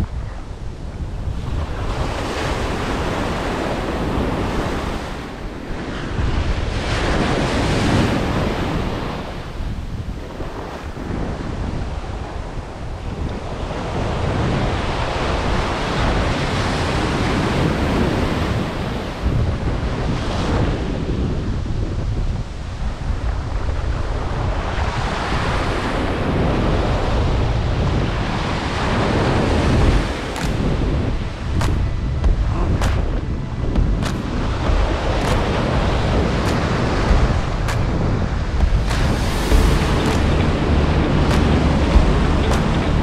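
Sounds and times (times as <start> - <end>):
wind buffeting microphone: 0.0 - 43.0
surf breaking on beach: 23.4 - 43.0.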